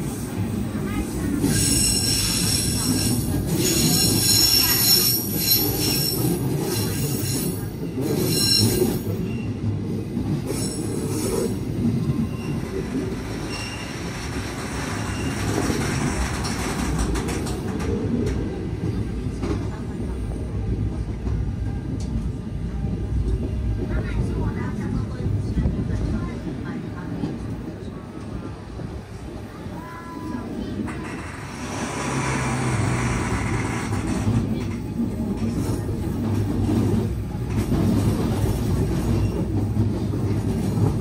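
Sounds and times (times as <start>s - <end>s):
wheels rumbling on rails: 0.0s - 41.0s
train wheels squealing: 1.4s - 9.7s, 10.5s - 16.7s, 39.0s - 39.7s.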